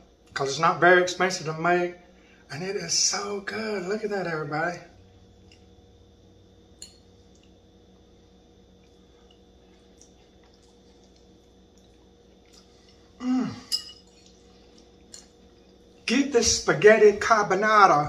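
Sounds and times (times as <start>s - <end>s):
man humming mmm: 13.2s - 13.8s.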